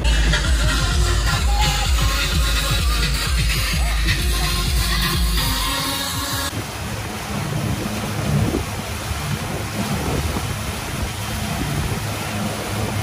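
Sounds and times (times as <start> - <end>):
outboard motor running: 0.0 - 13.0
water churning in wake: 0.0 - 13.0
wind buffeting microphone: 6.5 - 13.0.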